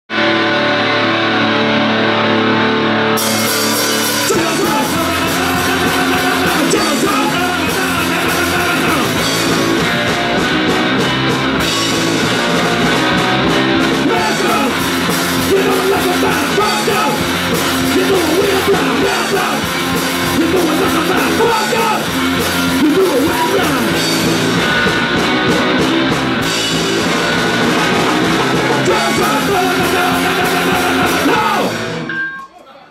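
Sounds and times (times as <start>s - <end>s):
electric bass: 0.0s - 32.1s
electric guitar chords: 0.1s - 32.4s
drum kit: 3.0s - 32.5s
person singing: 3.2s - 9.4s, 13.9s - 24.0s, 28.7s - 31.8s.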